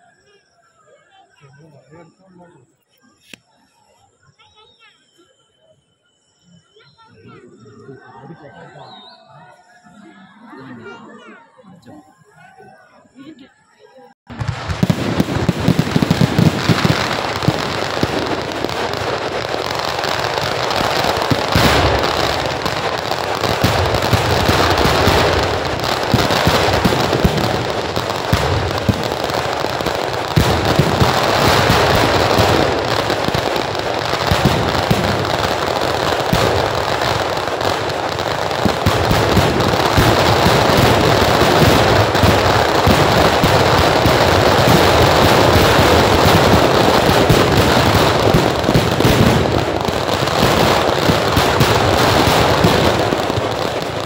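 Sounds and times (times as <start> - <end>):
firecracker and shell explosions: 14.3 - 54.0.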